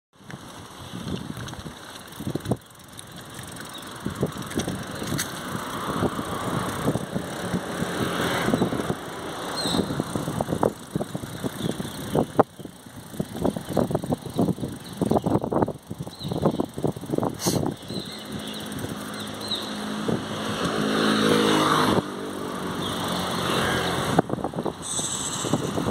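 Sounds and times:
bike rattling over cobblestones: 0:00.2 - 0:25.9
rushing noise: 0:24.8 - 0:25.9.

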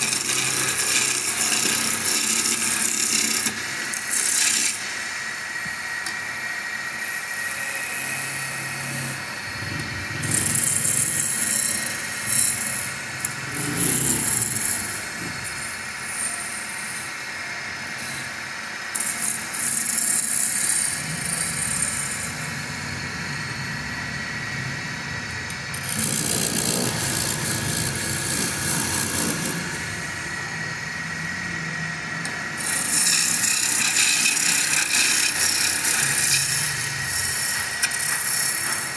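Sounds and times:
chisel scraping spinning wood: 0:00.0 - 0:04.8, 0:08.8 - 0:15.5, 0:25.7 - 0:30.5, 0:32.3 - 0:38.9
wood lathe whining: 0:00.0 - 0:38.9.

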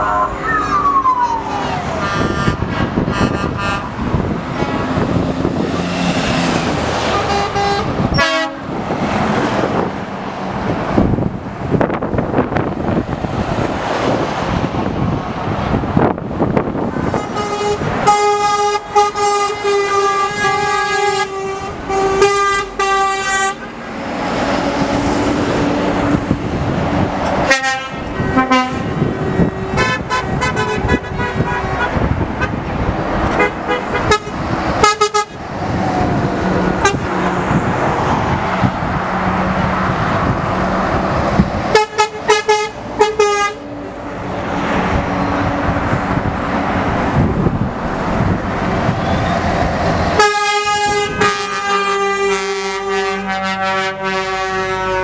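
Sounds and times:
diesel engines and tyres running: 0:00.0 - 0:55.0
lorry air horns blowing: 0:01.6 - 0:05.0, 0:07.1 - 0:08.7, 0:16.9 - 0:23.9, 0:27.4 - 0:32.6, 0:33.3 - 0:35.4, 0:36.6 - 0:37.3, 0:41.7 - 0:43.6, 0:50.2 - 0:55.0.

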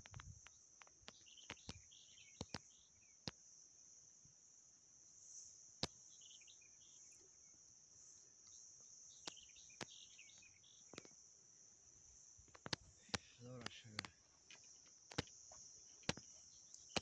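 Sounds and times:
faint bird chirps: 0:00.0 - 0:04.4, 0:05.0 - 0:17.0
crickets trilling: 0:00.0 - 0:17.0
sharp clicks: 0:12.5 - 0:15.4.

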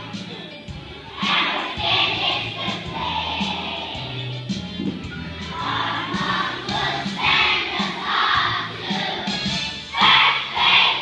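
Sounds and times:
musical accompaniment: 0:00.0 - 0:11.0
children singing in unison: 0:01.2 - 0:04.2, 0:05.5 - 0:11.0.

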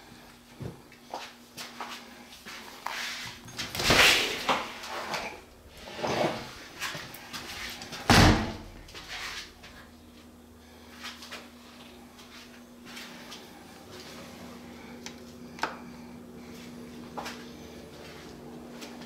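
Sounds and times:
shower door banging shut: 0:08.1 - 0:08.7.

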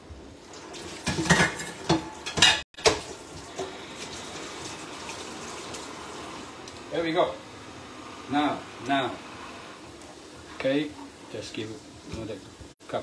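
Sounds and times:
pan clattering in metal sink: 0:00.8 - 0:03.7
tap water running into sink: 0:02.8 - 0:06.8.

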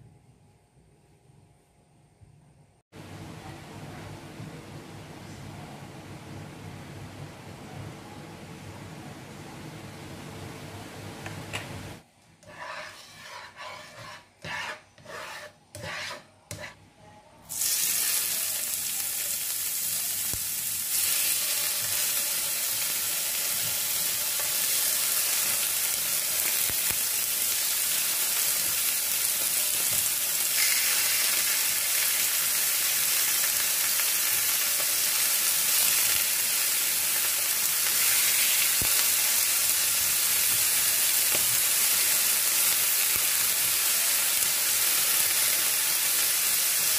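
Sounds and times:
spatula scraping frying pan: 0:12.4 - 0:16.8
chicken sizzling in oil: 0:17.5 - 0:46.9.

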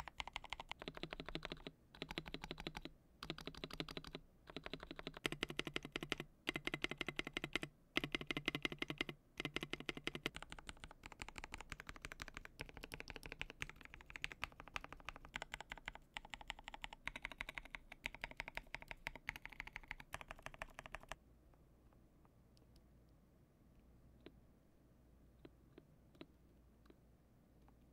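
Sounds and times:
mechanical keyboard typing: 0:00.0 - 0:21.2.

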